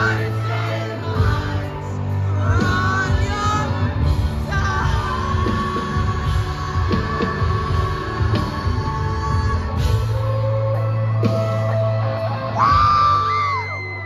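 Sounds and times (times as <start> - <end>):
live rock band playing: 0.0 - 14.0.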